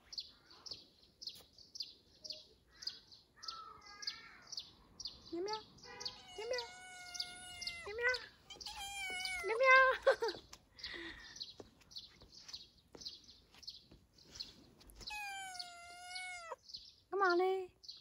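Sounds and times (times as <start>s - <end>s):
cat meowing: 6.2s - 9.6s, 15.0s - 16.6s.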